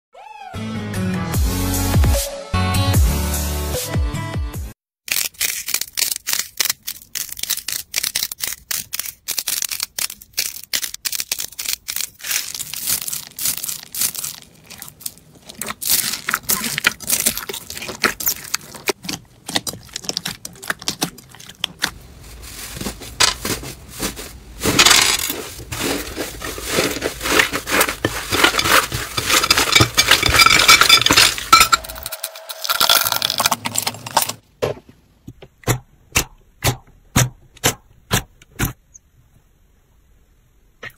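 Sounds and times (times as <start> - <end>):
crunchy slime crackling: 5.1 - 30.6.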